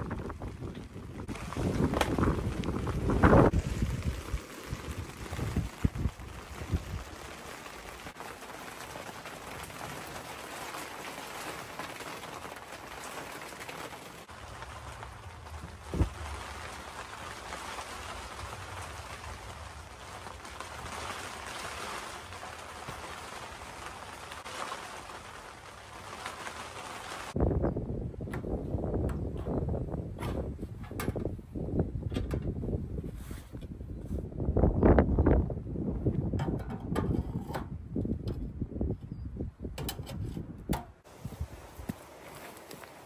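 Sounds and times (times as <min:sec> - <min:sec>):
steady rain falling: 0:00.0 - 0:30.0, 0:41.0 - 0:43.0.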